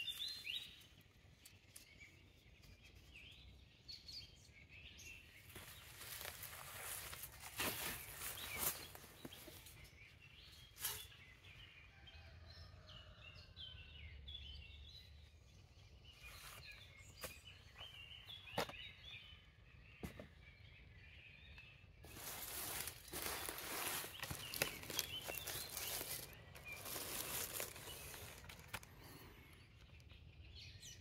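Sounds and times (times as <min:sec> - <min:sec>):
birds chirping and trilling: 0:00.0 - 0:31.0
rustling: 0:22.0 - 0:29.3.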